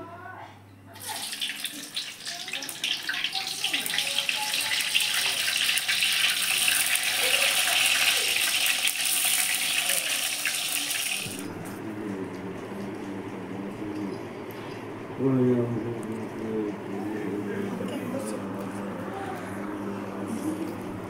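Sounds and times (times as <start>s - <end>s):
tofu sizzling in oil: 1.0s - 11.3s.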